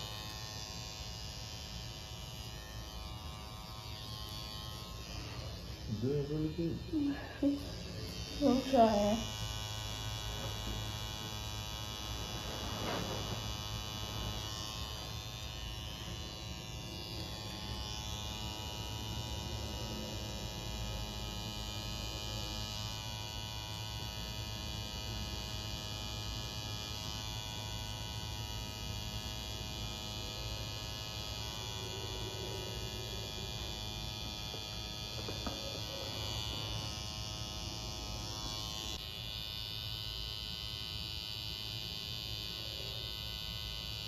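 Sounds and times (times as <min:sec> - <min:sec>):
tattoo machine buzzing: 0:00.0 - 0:44.0.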